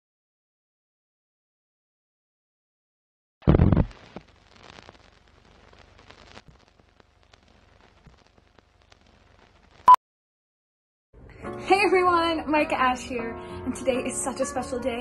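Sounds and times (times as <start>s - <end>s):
old film crackling hiss: 3.4s - 9.9s.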